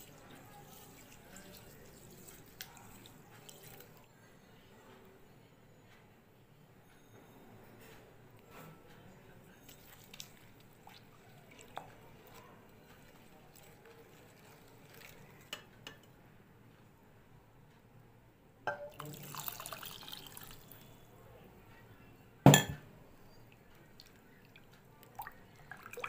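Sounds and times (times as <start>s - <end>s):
spatula stirring wet mixture: 0.0s - 4.1s, 9.4s - 16.1s
taps and clinks on glass: 18.7s - 19.1s, 22.5s - 22.8s
liquid pouring with splash: 18.8s - 20.8s.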